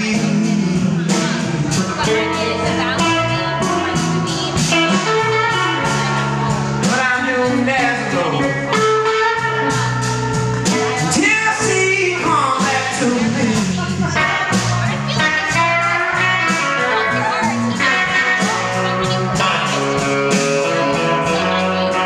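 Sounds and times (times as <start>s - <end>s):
live blues band playing: 0.0s - 22.0s.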